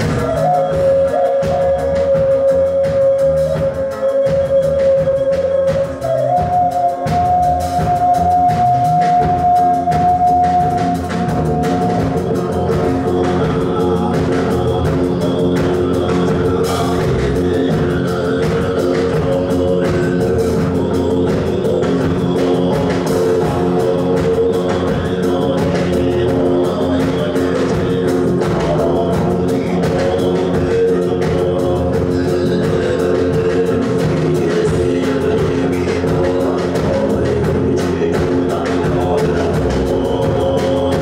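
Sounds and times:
drum kit: 0.0 - 41.0
man singing: 0.0 - 41.0
steady drone: 7.0 - 41.0.

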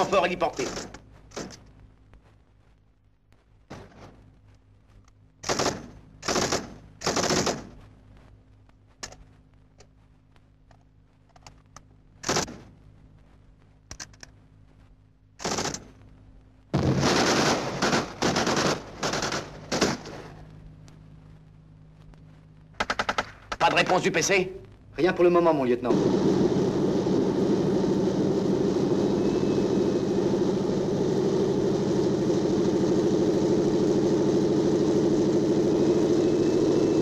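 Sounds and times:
automatic gunfire bursts: 5.4 - 7.8, 12.2 - 12.7, 15.4 - 15.9, 16.8 - 20.2.

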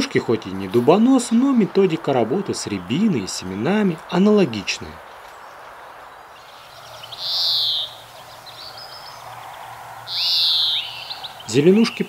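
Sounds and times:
faint bird twittering: 0.0 - 12.0
bird buzzy wheeze call: 6.9 - 11.5.

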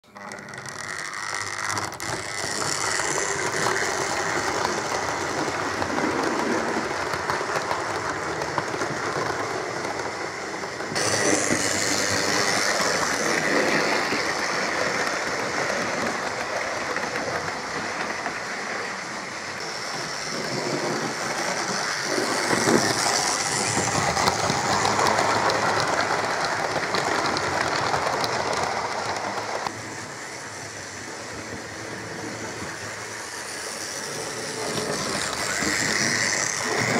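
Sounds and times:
model train motors whirring: 0.0 - 36.9
wheels clattering over rail joints: 0.1 - 29.9, 32.3 - 36.9.

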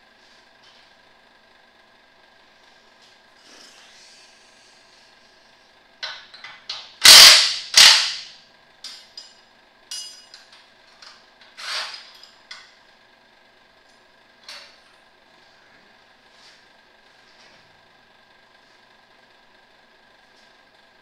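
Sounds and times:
metal tools clanking: 8.8 - 10.5.

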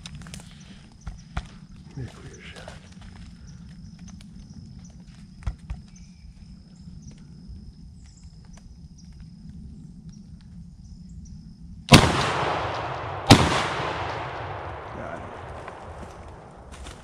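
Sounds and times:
gunshots echoing: 11.9 - 16.8.

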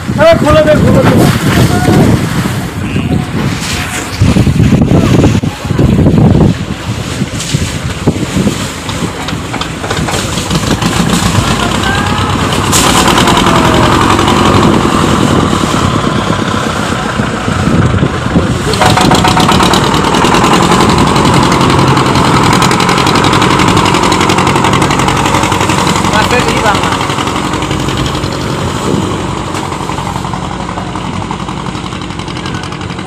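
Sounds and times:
boat engine running: 0.0 - 33.0
rushing water: 0.0 - 33.0
wind: 0.0 - 33.0.

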